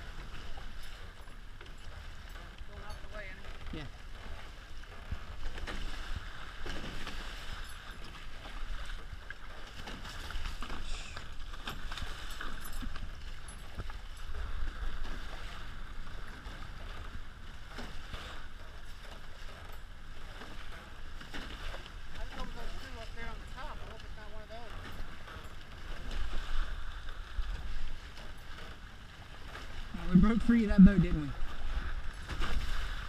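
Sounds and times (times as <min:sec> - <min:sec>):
water rushing and splashing: 0:00.0 - 0:33.0
wind rumbling on microphone: 0:29.2 - 0:33.0.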